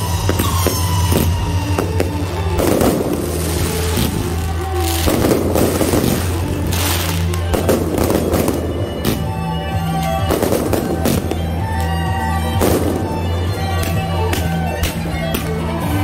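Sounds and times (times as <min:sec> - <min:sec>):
fireworks bursting and crackling: 0:00.0 - 0:16.0
music playing: 0:00.0 - 0:16.0.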